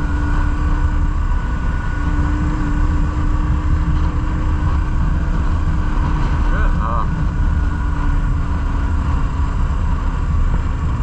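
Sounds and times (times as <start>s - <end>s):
motorcycle engine running: 0.0s - 11.0s
wind rumble on microphone: 0.0s - 11.0s.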